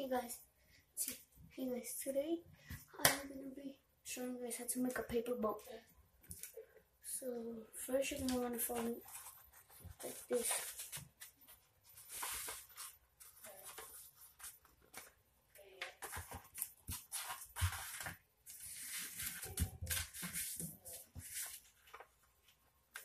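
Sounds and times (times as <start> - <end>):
paper rustling and crackling: 8.2 - 15.2, 15.8 - 23.0.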